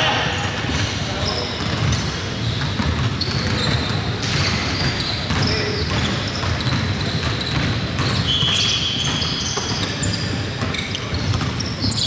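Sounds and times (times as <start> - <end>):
high shoe squeak: 0.7 - 12.0
basketball dribbling on hardwood: 2.7 - 9.8.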